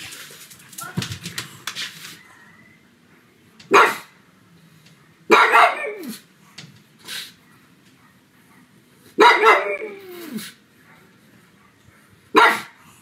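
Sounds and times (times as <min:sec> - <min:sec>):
dog barking: 0:03.7 - 0:04.1, 0:05.3 - 0:06.2, 0:09.2 - 0:10.0, 0:12.3 - 0:12.8.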